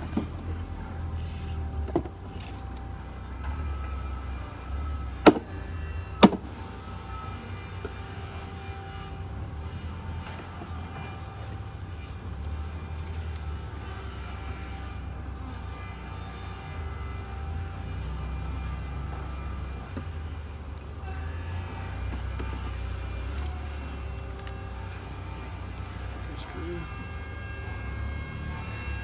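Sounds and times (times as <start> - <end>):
sharp wooden knocks: 5.2 - 5.6, 6.2 - 6.5.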